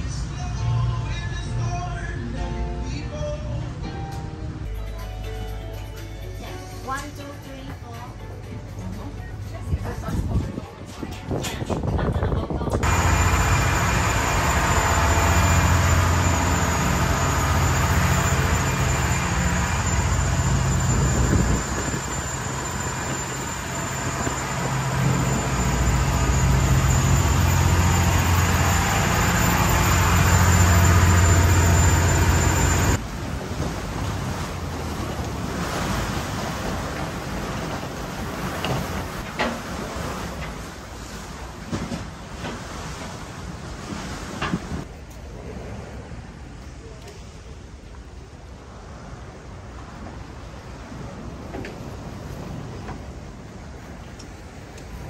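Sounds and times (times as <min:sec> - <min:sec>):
wind on microphone: 0:09.7 - 0:13.0, 0:20.8 - 0:22.2
ferry engine drone: 0:12.5 - 0:42.7
rushing water: 0:12.8 - 0:55.0.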